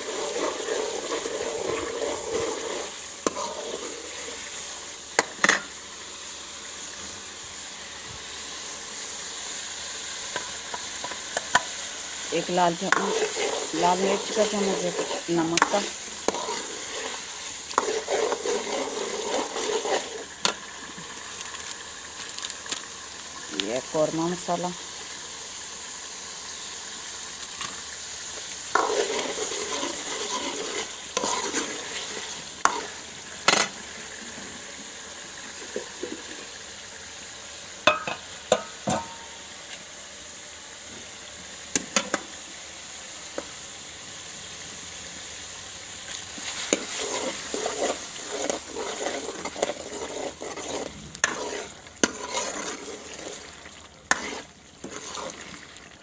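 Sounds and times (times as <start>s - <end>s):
metal spoon scraping a pan: 0.0s - 4.5s, 12.4s - 20.6s, 28.7s - 33.8s, 46.4s - 55.6s
food sizzling in a pan: 0.0s - 56.0s.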